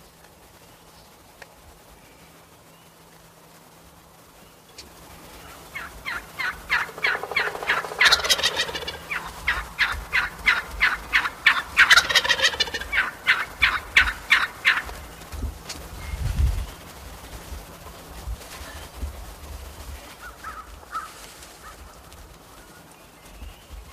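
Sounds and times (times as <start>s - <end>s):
turkeys yelping: 4.8s - 15.8s, 20.1s - 23.9s
turkey rattling gobble: 4.8s - 16.0s, 16.6s - 23.9s.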